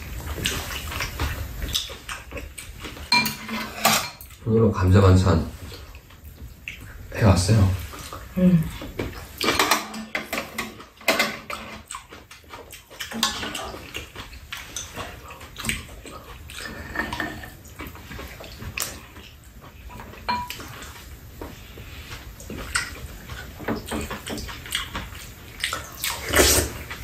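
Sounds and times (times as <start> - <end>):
wet chewing and smacking: 0.0 - 3.2, 5.6 - 9.7, 10.3 - 27.0
utensils clinking against bowls: 3.0 - 4.4, 9.4 - 11.9, 13.1 - 14.0, 20.1 - 20.8.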